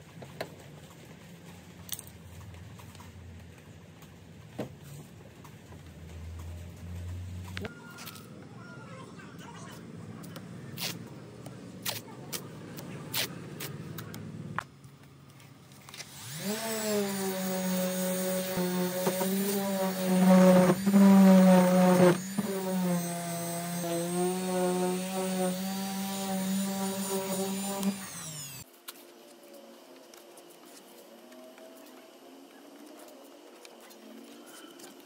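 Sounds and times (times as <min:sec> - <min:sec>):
masking tape tearing: 0:10.8 - 0:11.0, 0:11.8 - 0:12.5, 0:13.1 - 0:13.8, 0:15.8 - 0:28.6
orbital sander whining: 0:16.0 - 0:28.7.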